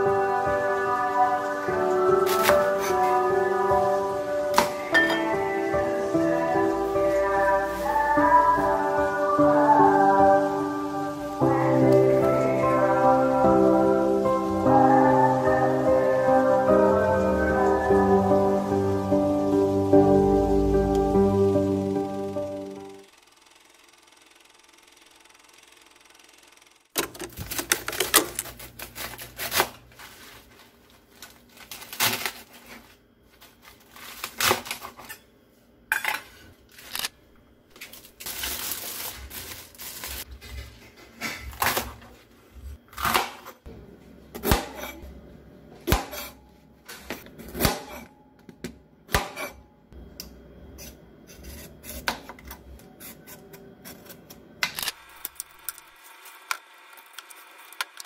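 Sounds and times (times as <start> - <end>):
clatter of handling vegetables: 27.0 - 35.2.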